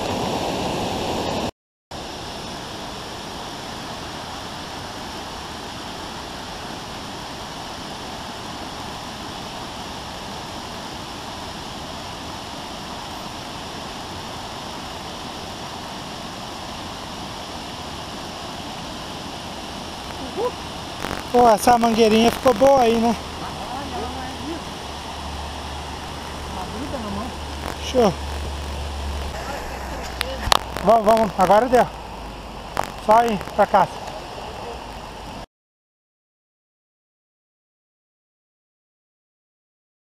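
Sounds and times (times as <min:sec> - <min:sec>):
running water rushing: 0:00.0 - 0:35.5.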